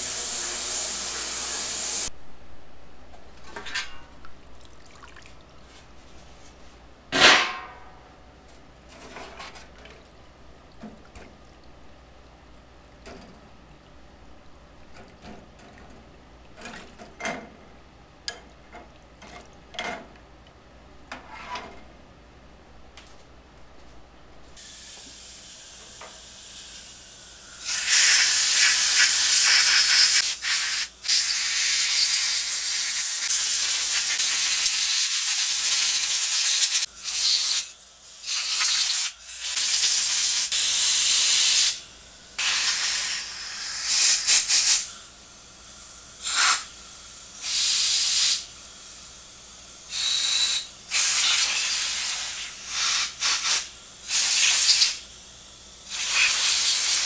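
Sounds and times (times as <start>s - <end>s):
compressed air blow gun hissing: 24.6s - 41.8s, 42.4s - 45.0s, 46.2s - 46.8s, 47.4s - 49.0s, 49.9s - 55.0s, 55.9s - 57.0s.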